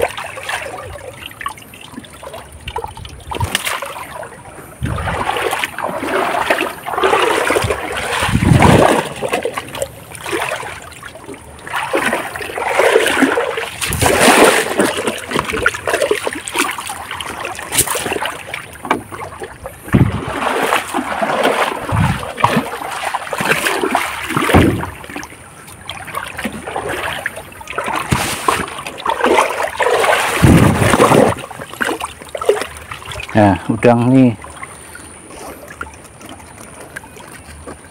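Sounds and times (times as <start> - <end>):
water splashing and sloshing: 0.0 - 37.9
dull thumps: 24.4 - 25.0.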